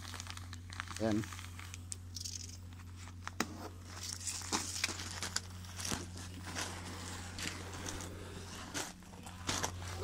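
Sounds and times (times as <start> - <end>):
foil insulation crinkling: 0.0 - 10.0
steady low hum: 0.0 - 10.0.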